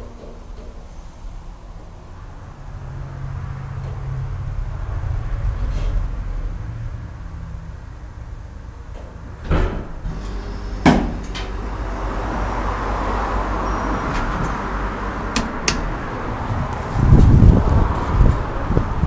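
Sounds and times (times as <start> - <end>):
elevator running: 0.0 - 19.0
elevator door thud: 8.9 - 11.6
elevator door knocking shut: 9.1 - 10.1.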